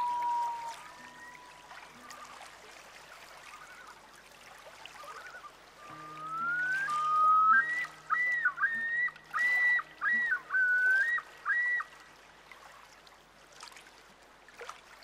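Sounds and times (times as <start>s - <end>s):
whistle-like melody over low drone: 0.0s - 2.4s, 5.0s - 11.9s.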